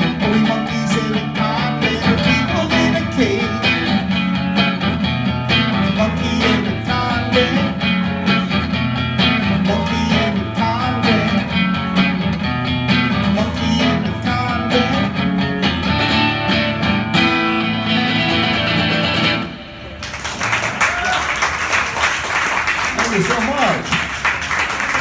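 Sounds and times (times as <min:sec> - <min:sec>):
electric guitar strumming: 0:00.0 - 0:20.0.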